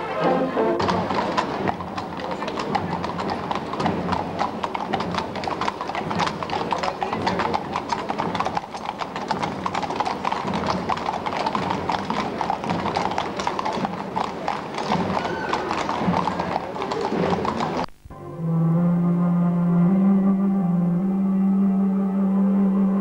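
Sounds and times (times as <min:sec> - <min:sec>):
horses hooves on pavement: 0:00.3 - 0:18.0.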